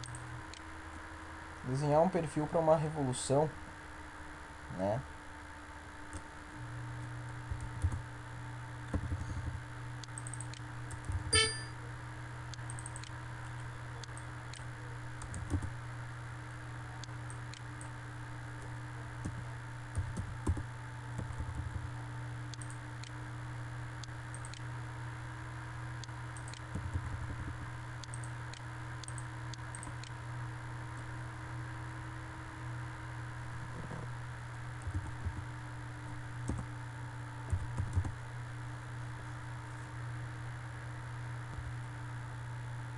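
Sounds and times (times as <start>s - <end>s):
keyboard and mouse clicks: 0.0s - 0.6s, 10.0s - 11.6s, 12.5s - 15.7s, 22.5s - 23.2s, 24.3s - 24.7s, 26.4s - 30.2s, 37.5s - 38.2s
low electrical hum: 0.0s - 42.9s
brief ringing tone: 11.3s - 11.8s.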